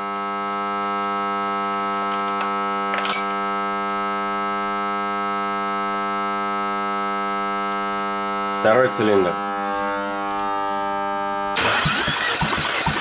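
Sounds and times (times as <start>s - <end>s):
electrical buzz: 0.2s - 13.0s.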